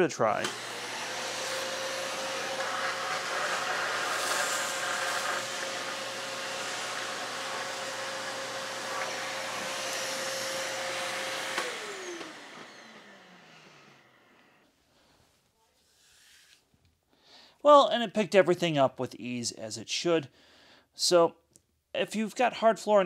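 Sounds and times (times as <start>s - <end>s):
vacuum cleaner running: 0.0s - 14.7s
vacuum motor winding down: 0.4s - 14.6s.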